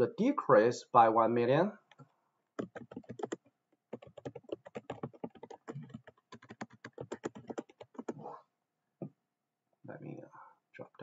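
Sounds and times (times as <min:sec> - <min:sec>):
keyboard typing clicks: 0:02.6 - 0:08.2.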